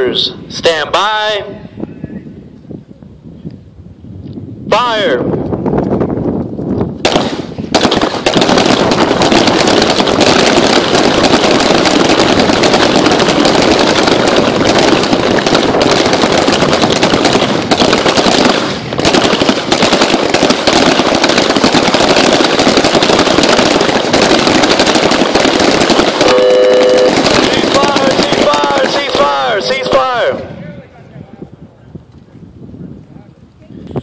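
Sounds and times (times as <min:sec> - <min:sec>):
pistols firing: 0:07.0 - 0:30.2.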